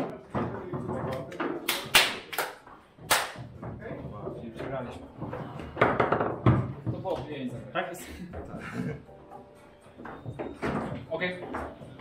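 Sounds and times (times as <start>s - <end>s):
foosball clacks and knocks: 2.7s - 7.3s.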